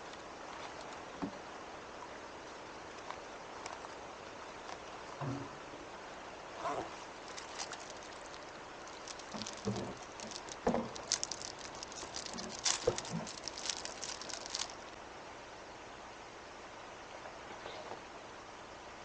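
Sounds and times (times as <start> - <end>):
crackly clicks: 2.9 - 4.0, 7.2 - 14.9.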